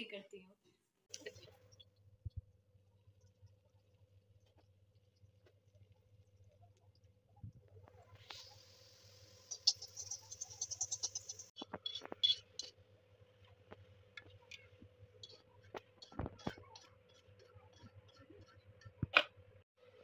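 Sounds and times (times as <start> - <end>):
chillies sizzling in hot oil: 8.1 - 12.8
fork scraping metal pan: 9.5 - 12.7.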